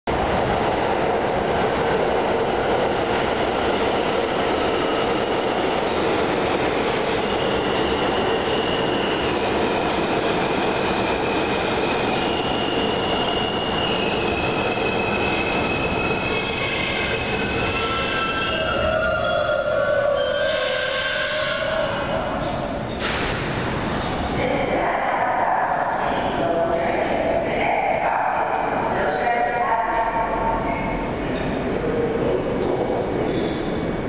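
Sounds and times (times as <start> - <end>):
train wheels rumbling on rails: 0.1 - 24.9
high-pitched brake squealing: 12.2 - 24.2, 30.6 - 31.2.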